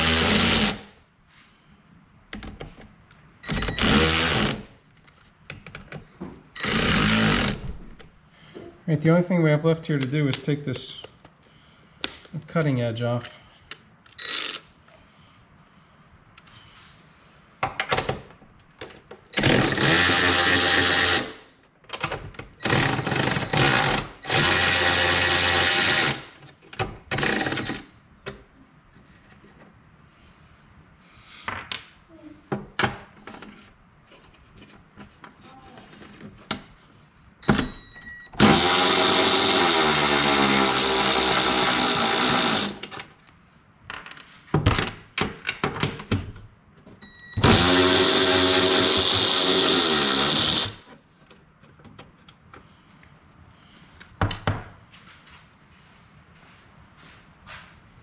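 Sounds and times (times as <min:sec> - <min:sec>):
handheld power tool running: 0:00.0 - 0:00.9, 0:03.6 - 0:04.7, 0:06.6 - 0:07.6, 0:19.4 - 0:21.4, 0:22.6 - 0:26.3, 0:38.4 - 0:42.9, 0:47.4 - 0:50.9.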